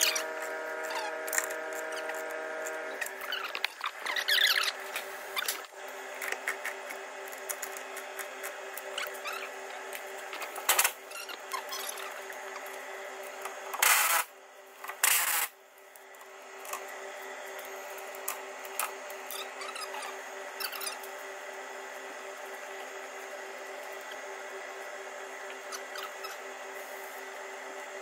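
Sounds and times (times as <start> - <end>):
steady hum: 0.0 - 28.0.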